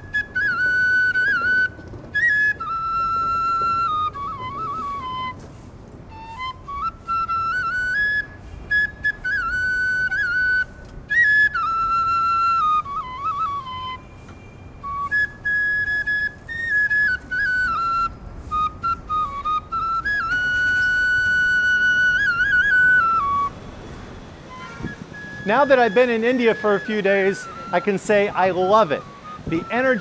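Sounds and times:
solo flute melody: 0.0s - 30.0s.

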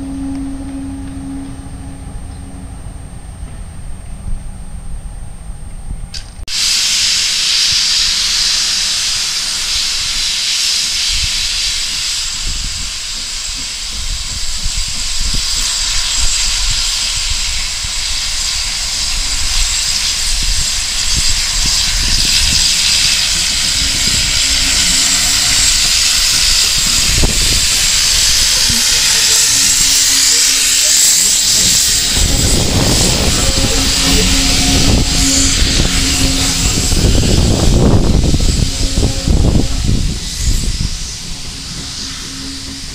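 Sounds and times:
low rumble: 0.0s - 6.4s, 21.7s - 42.9s
steam locomotive hissing steam: 6.4s - 42.9s.

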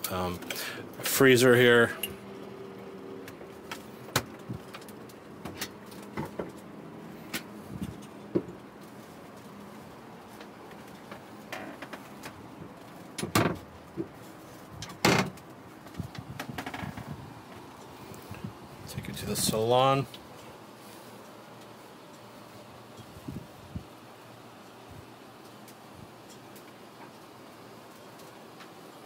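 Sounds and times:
faint steady hum: 0.0s - 29.0s
cabinet doors clicking and knocking: 13.2s - 14.1s.

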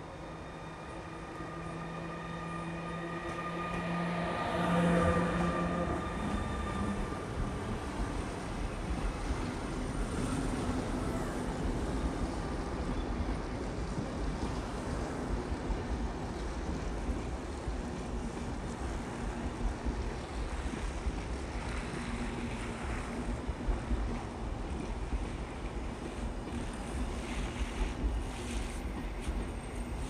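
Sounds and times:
train wheels rumbling on track: 0.0s - 30.0s.

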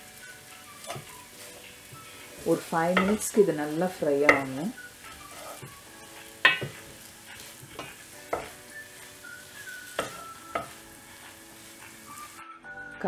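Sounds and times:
faint sizzle: 0.0s - 13.0s
wooden spatula knocking and scraping pot: 0.8s - 8.6s, 9.9s - 12.0s.

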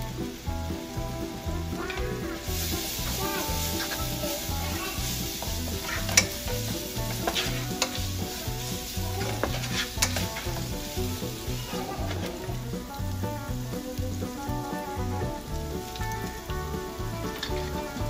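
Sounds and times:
onions sizzling in hot oil: 0.0s - 18.0s
wooden spatula scraping pan: 0.0s - 18.0s
spatula knocking against pan: 4.6s - 11.5s.

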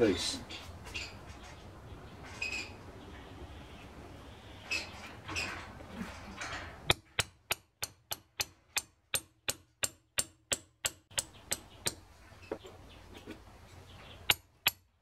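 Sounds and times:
soft handling noise: 12.2s - 14.2s.

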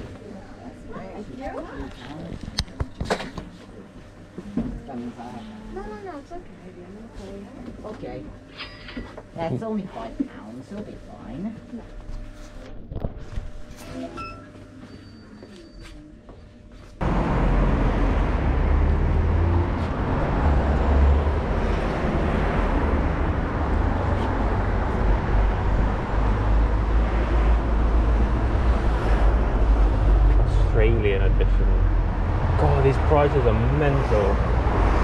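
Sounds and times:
road traffic rumble: 17.0s - 35.0s.

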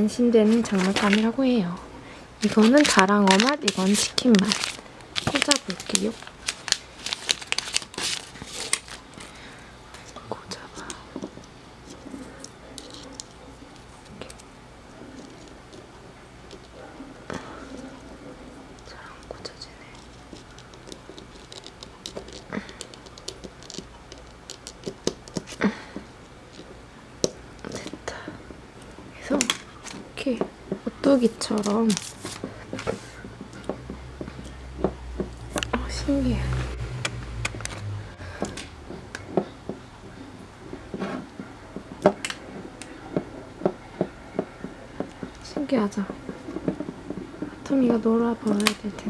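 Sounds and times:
plastic toy rocking on wooden table: 40.9s - 48.6s.

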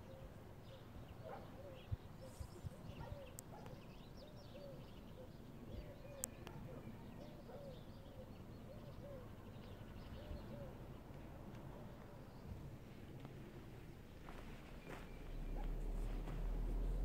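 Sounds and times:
small birds chirping: 0.0s - 17.0s
dove cooing: 4.5s - 9.5s, 10.1s - 11.0s.

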